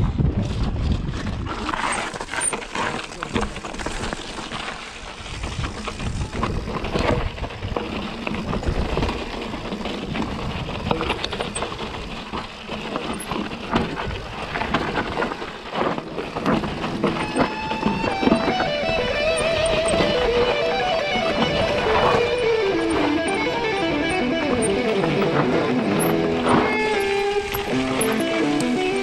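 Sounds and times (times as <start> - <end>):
bike rattling and clattering: 0.0 - 29.0
tyres crunching over stones: 1.2 - 29.0
electric guitar music: 17.2 - 29.0.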